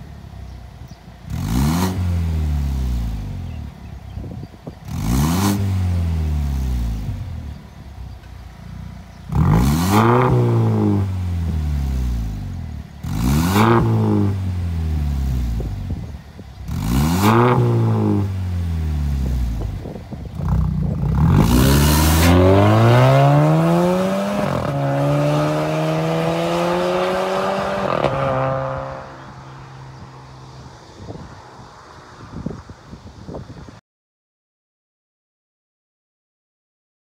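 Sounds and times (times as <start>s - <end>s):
car accelerating away: 1.2s - 3.7s, 4.8s - 7.6s, 9.1s - 16.0s, 16.6s - 32.6s
car engine revving: 1.2s - 4.1s, 4.8s - 31.9s.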